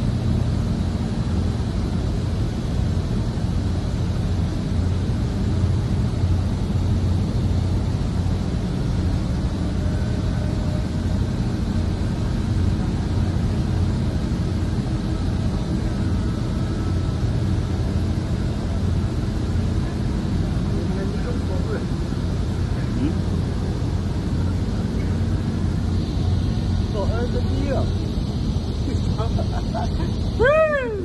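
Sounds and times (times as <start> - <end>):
heavy machinery droning: 0.0 - 31.0
faint whining tones: 4.1 - 31.0.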